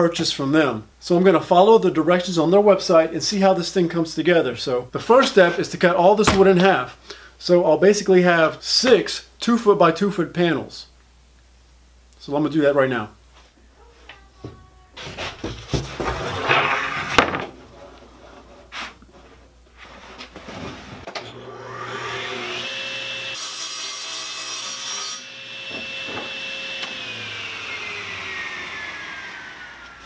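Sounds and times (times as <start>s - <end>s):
saw cutting plywood: 16.0s - 17.2s, 21.3s - 30.0s
table saw whining: 21.0s - 30.0s.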